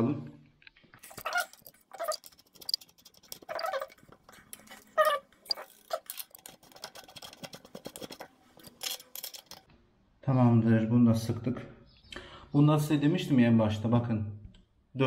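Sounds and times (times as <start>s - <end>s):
wrench metallic clicks and clinks: 1.1s - 9.7s.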